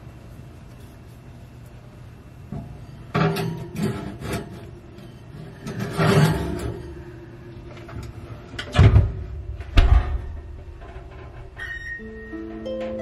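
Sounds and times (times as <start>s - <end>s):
scraping rub: 3.8s - 6.9s
heavy thud: 8.8s - 11.3s.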